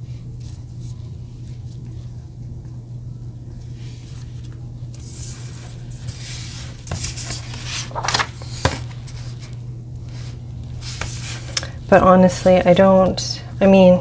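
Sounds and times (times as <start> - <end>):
steady low hum: 0.0 - 14.0
paper rustling: 3.6 - 11.6.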